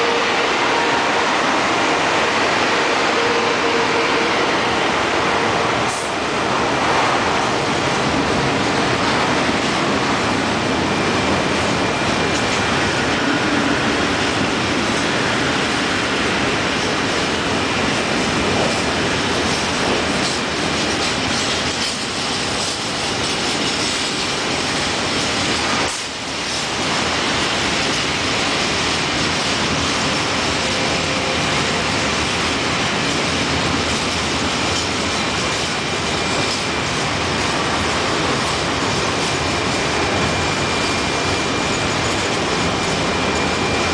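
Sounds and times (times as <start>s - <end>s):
train wheels clattering over rails: 0.0s - 43.9s.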